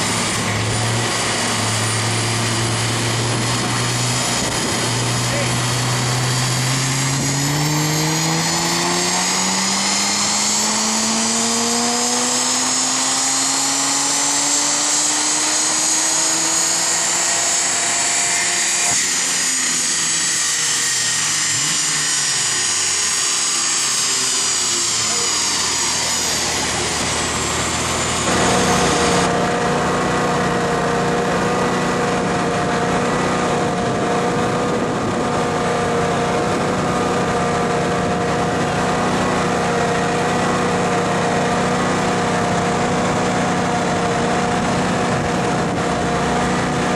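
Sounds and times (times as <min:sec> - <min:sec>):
car engine revving on dyno: 0:00.0 - 0:46.9
engine idling: 0:00.0 - 0:46.9
whine of spinning rollers: 0:00.0 - 0:46.9.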